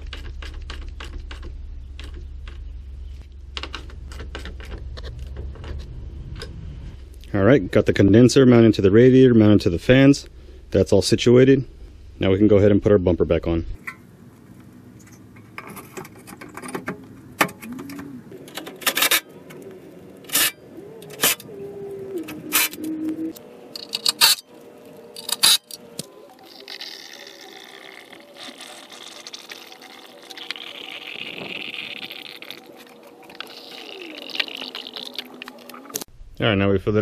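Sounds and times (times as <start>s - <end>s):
liquid pouring: 26.7s - 36.0s.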